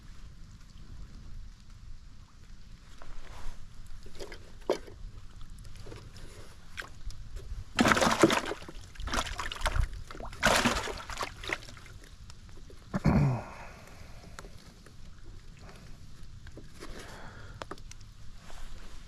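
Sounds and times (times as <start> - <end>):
water sloshing in bucket: 4.0 - 12.1.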